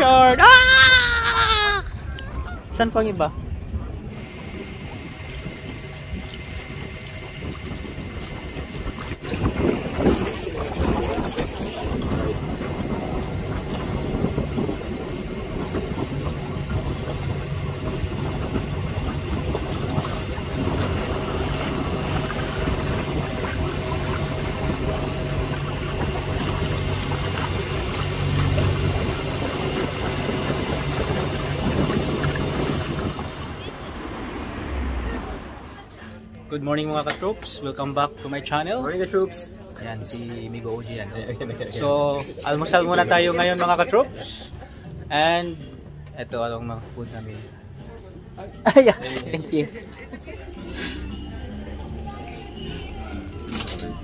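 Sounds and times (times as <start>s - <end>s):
wind buffeting microphone: 0.0s - 36.1s
water noise: 0.0s - 37.4s, 49.4s - 54.0s
boat engine humming: 0.0s - 54.0s.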